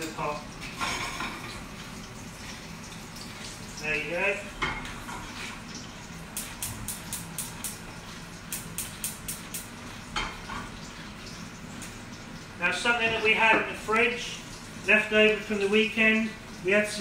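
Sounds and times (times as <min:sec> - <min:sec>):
meat sizzling in a pan: 0:00.0 - 0:12.6.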